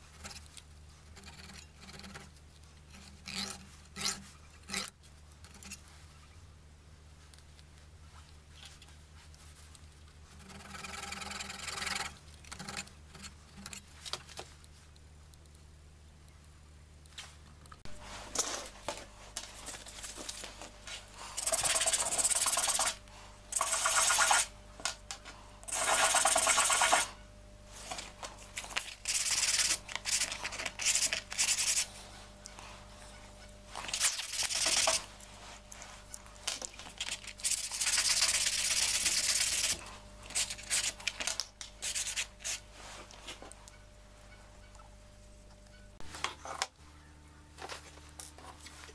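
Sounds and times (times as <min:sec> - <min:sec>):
sanding wooden beads on sandpaper: 0:21.4 - 0:23.0, 0:23.6 - 0:24.5, 0:25.7 - 0:27.1, 0:29.0 - 0:31.9, 0:37.4 - 0:39.8.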